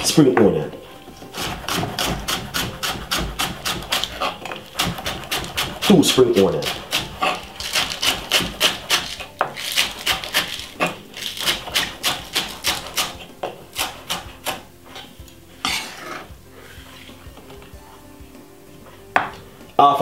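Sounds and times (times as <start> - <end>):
knife chopping on wooden board: 1.4 - 14.6.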